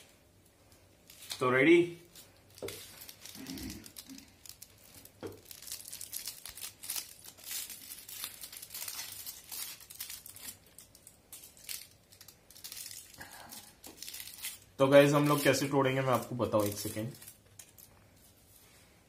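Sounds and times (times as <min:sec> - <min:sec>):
foil wrapper crinkling and tearing: 0:01.0 - 0:18.0.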